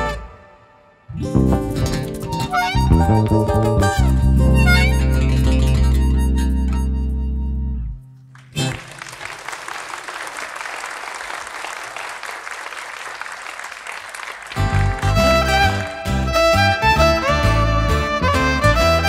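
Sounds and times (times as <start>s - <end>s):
acoustic band playing: 0.0s - 8.8s, 14.5s - 19.0s
audience applauding: 8.3s - 16.3s.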